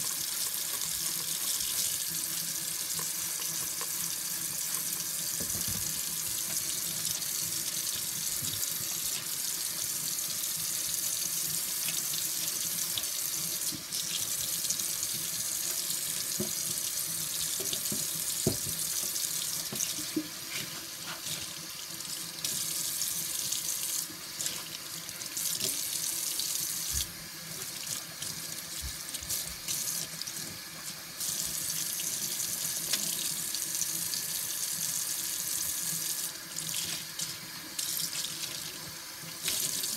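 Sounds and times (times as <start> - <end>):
tap running into metal sink: 5.4 - 6.6, 17.5 - 20.3.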